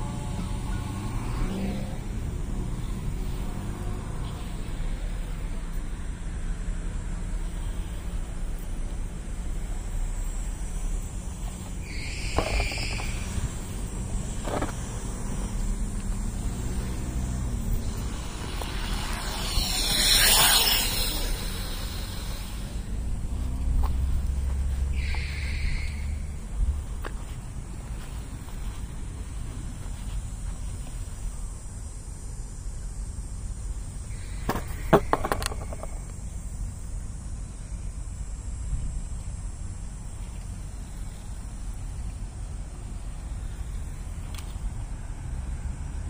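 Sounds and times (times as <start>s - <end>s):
vehicle passing close by: 0.0s - 5.4s, 12.1s - 26.9s
low rumble of vehicles: 0.0s - 46.0s
sharp clicks and knocks: 34.5s - 36.2s.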